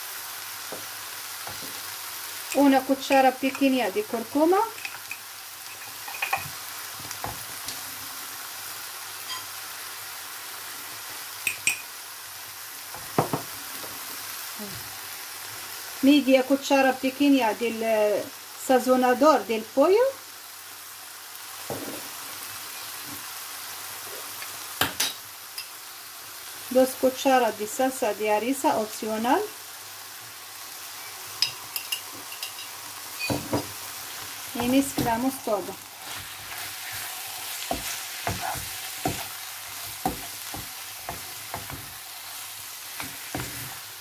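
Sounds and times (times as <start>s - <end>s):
food sizzling in a pan: 0.0s - 44.0s
knock: 13.1s - 13.5s
spatula scraping a pan: 34.6s - 43.9s.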